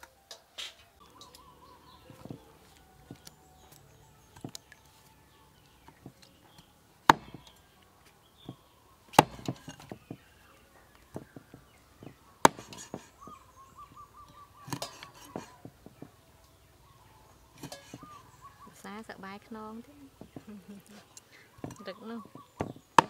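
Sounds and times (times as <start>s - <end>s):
cleaver chopping on wooden board: 7.1s - 7.6s, 9.1s - 10.2s, 12.4s - 13.1s, 14.7s - 16.0s.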